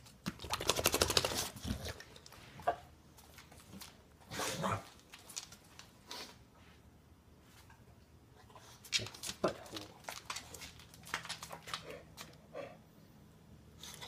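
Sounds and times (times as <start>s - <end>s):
dog rattling sound: 0.4s - 1.7s.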